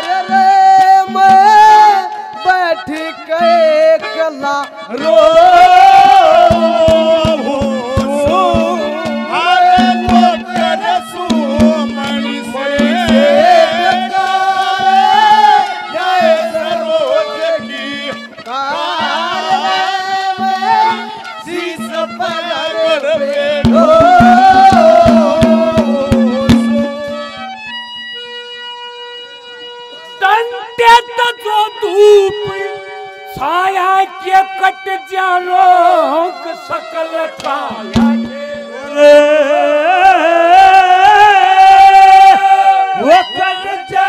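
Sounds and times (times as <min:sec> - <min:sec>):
man singing into a microphone: 0:00.0 - 0:27.6, 0:30.1 - 0:44.0
held instrumental chord: 0:04.0 - 0:39.0
hand-drum strokes: 0:06.4 - 0:16.4, 0:23.4 - 0:27.5, 0:37.4 - 0:38.6.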